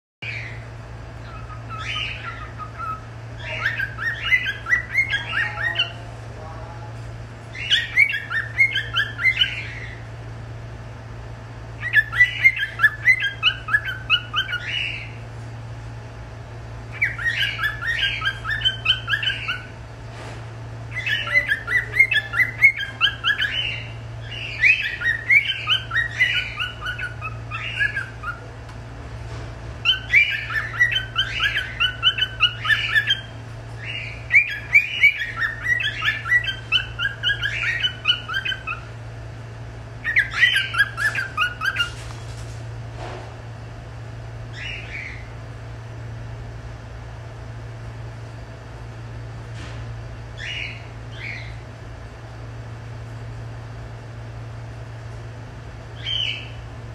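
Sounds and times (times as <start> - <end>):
cockatiel chirping and warbling: 0.2 - 0.6, 1.2 - 6.0, 7.5 - 10.1, 11.8 - 15.2, 16.9 - 19.7, 20.9 - 28.5, 29.8 - 39.0, 40.0 - 42.3, 44.5 - 45.3, 50.4 - 51.6, 56.0 - 56.6
steady low hum: 0.2 - 56.9.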